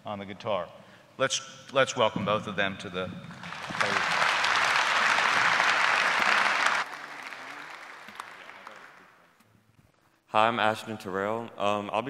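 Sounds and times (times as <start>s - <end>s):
audience applauding: 3.3s - 9.3s.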